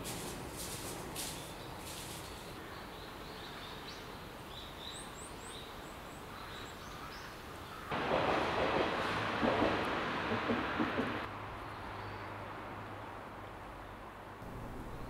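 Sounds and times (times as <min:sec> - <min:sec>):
footsteps in dry leaves: 0:00.0 - 0:02.6
steady forest hiss: 0:00.0 - 0:11.5, 0:14.1 - 0:15.0.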